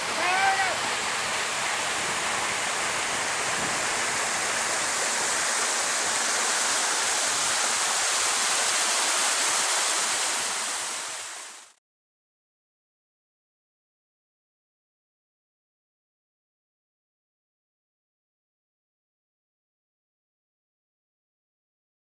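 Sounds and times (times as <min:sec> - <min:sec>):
hissing rush of noise: 0:00.2 - 0:11.7.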